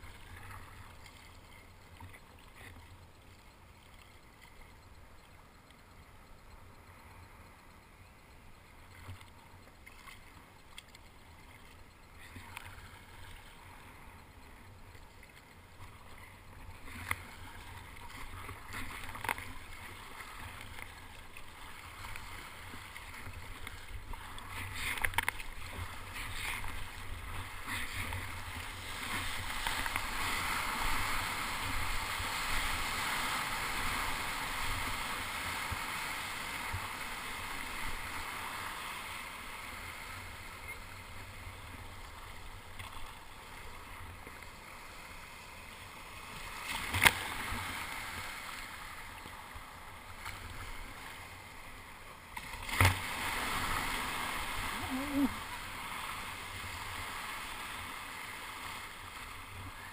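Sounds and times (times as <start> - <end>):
water splashing against kayak: 0.0 - 7.4, 8.1 - 59.9.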